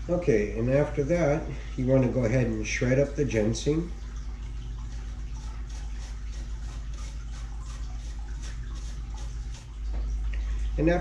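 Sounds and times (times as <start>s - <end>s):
steady low hum: 0.0s - 11.0s
ginger rasping on a grater: 5.4s - 9.7s.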